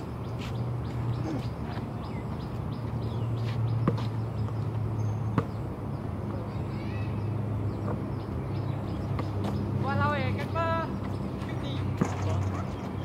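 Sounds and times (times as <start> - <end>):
basketball bouncing on hard court: 5.3 - 5.6.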